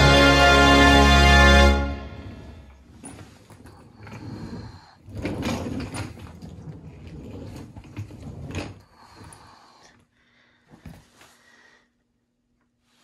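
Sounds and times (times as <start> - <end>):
suitcase rolling on wooden floor: 2.6 - 9.4.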